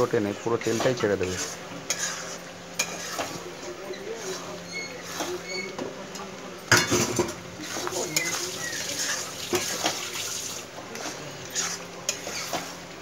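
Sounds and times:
spatula scraping rice in pan: 0:00.6 - 0:03.5, 0:04.2 - 0:05.4, 0:07.6 - 0:10.1, 0:11.0 - 0:12.8.

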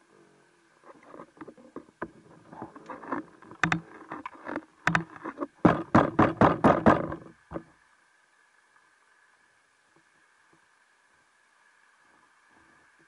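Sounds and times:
sharp underwater clicks and knocks: 0:00.9 - 0:07.7.

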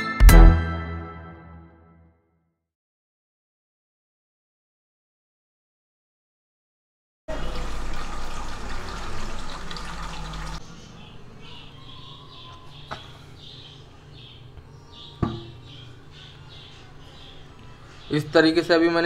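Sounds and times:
tap water running into metal bowl: 0:07.3 - 0:10.6
birds chirping: 0:08.7 - 0:19.0.

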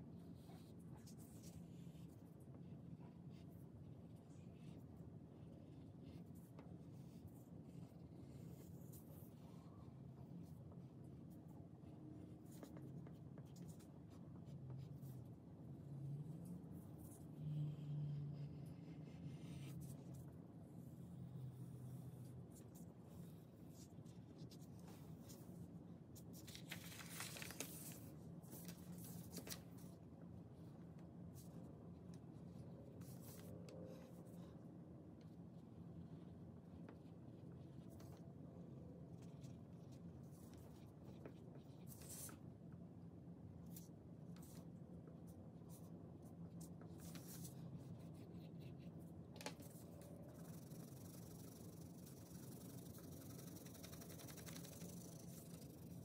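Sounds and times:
faint steady hum: 0:00.0 - 0:56.0
paper rustling and crinkling: 0:26.4 - 0:29.7.

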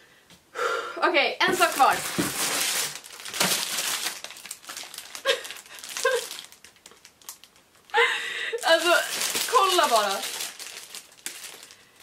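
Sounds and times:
plastic packaging crinkling: 0:01.4 - 0:12.0.

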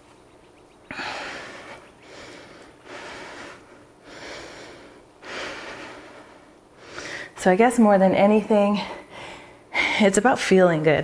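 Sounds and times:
woman breathing under exertion: 0:00.9 - 0:07.4.

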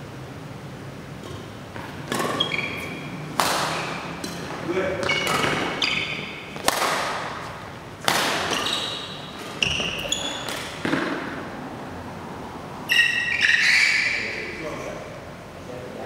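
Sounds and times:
shoes squeaking on court floor: 0:01.2 - 0:11.4, 0:12.8 - 0:14.6
rackets hitting shuttlecock: 0:01.2 - 0:11.5.

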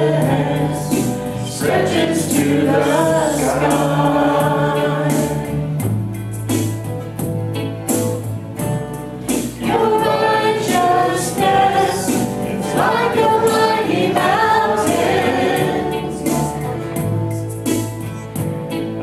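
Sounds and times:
group singing a hymn: 0:00.0 - 0:05.8, 0:09.6 - 0:17.5.

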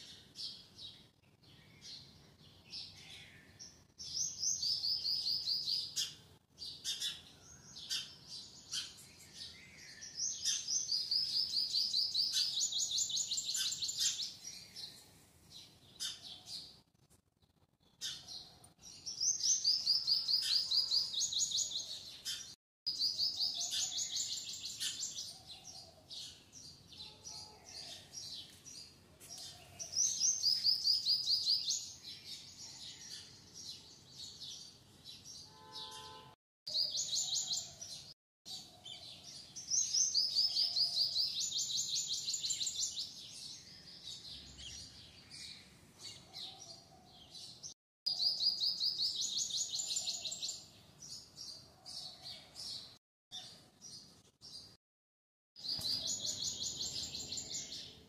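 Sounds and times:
bird singing high chirps: 0:02.8 - 0:15.0, 0:17.9 - 0:26.3, 0:35.2 - 0:37.8, 0:47.5 - 0:51.3, 0:55.6 - 0:58.0.

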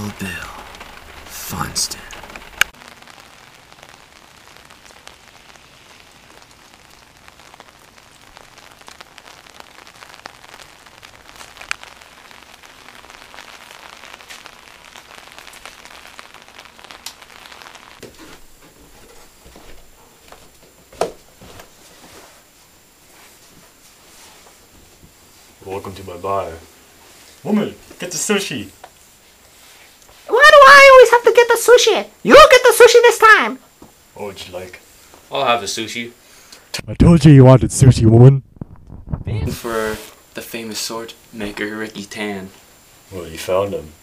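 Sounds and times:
steady rain falling: 0:00.0 - 0:44.0.

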